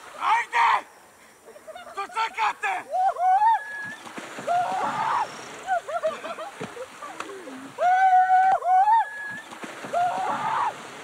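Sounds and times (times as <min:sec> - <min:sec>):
people shouting and whooping: 0:01.8 - 0:06.1, 0:07.7 - 0:10.8
water splashing: 0:01.9 - 0:11.0
long high yell: 0:07.8 - 0:09.4.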